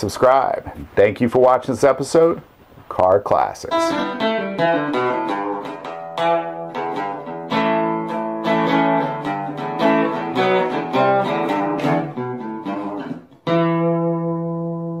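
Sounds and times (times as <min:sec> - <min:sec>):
acoustic guitar music: 0:03.6 - 0:15.0.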